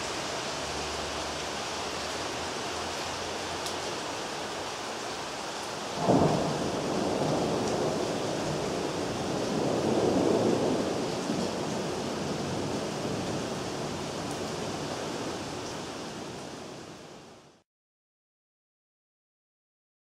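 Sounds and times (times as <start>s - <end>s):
steady rain hissing: 0.0s - 17.6s
low rumble of thunder: 5.9s - 14.4s.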